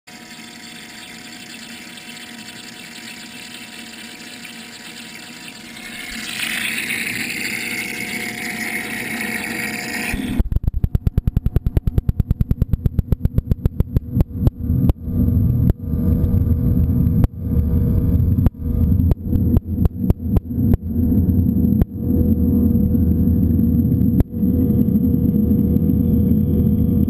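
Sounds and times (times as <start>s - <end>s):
underwater pulsing churn: 0.1s - 10.5s.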